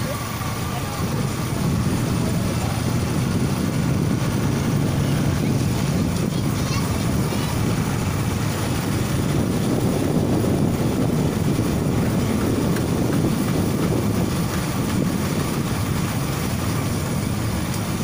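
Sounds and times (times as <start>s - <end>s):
moving vehicle rumble: 0.0s - 18.0s
wind buffeting microphone: 0.0s - 18.0s.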